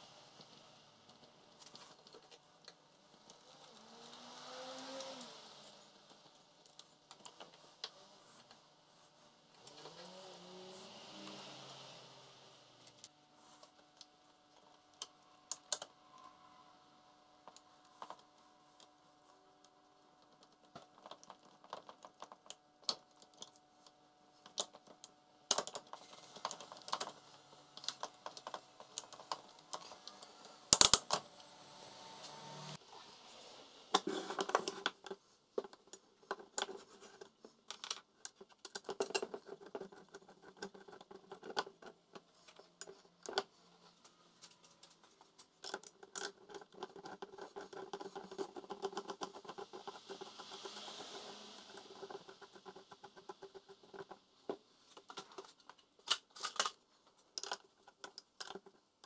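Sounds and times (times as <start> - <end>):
small hard parts clicking: 20.1 - 31.2, 34.0 - 43.5, 44.5 - 59.0.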